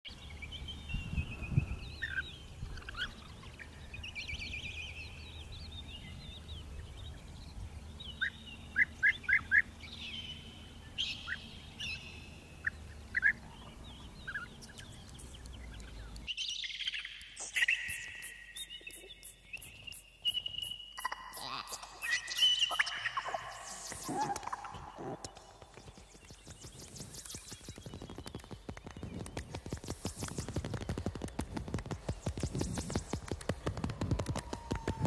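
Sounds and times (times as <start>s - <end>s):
bird chirping with high ticks: 1.9s - 34.7s
birds' rolling trilled calls: 7.9s - 35.0s.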